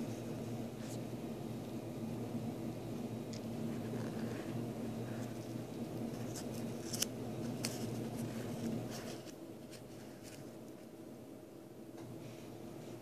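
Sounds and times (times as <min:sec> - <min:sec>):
steady low hum: 0:00.0 - 0:13.0
paper crackling: 0:03.7 - 0:10.9.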